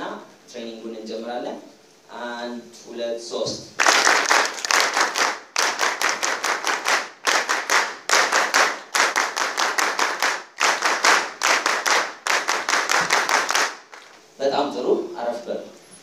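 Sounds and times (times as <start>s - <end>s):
audience clapping in unison: 3.8s - 14.2s.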